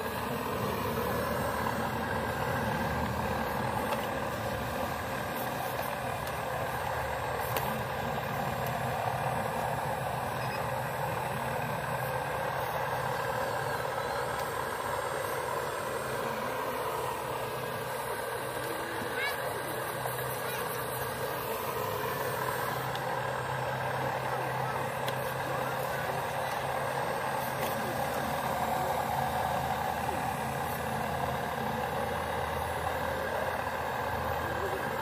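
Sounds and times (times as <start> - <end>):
model excavator mechanical hum: 0.0 - 35.0.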